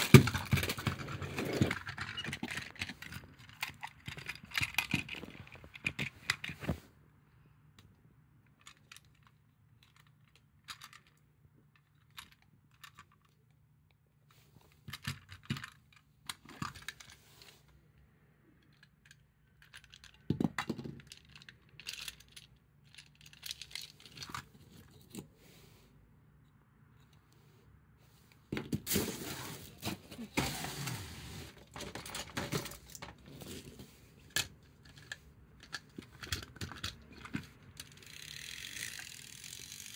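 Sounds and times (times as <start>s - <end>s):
plastic toy pieces clicking: 0.0s - 6.6s, 8.5s - 11.2s, 18.6s - 24.5s, 34.3s - 39.9s
plastic rattling and rubbing: 0.0s - 6.9s, 28.5s - 39.9s.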